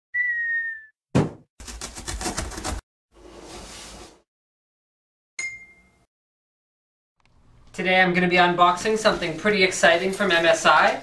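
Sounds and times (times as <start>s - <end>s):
falling whistle: 0.1s - 1.0s
bright ding: 5.4s - 6.1s.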